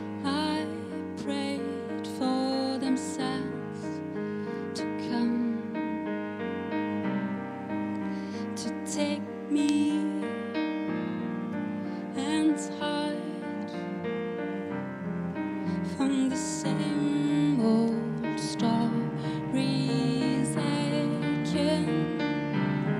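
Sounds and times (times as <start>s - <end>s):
woman singing: 0.0s - 6.1s, 8.4s - 11.2s, 12.1s - 14.1s, 15.7s - 22.8s
sustained piano chords: 0.0s - 22.9s.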